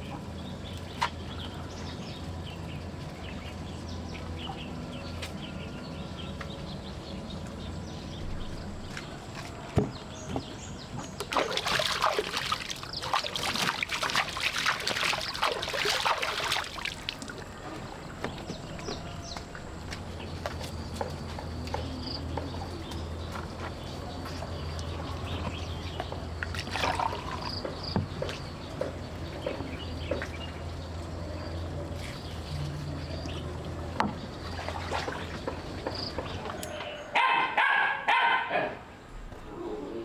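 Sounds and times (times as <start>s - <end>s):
steady low hum: 0.0s - 36.5s
dog barking: 37.2s - 38.8s.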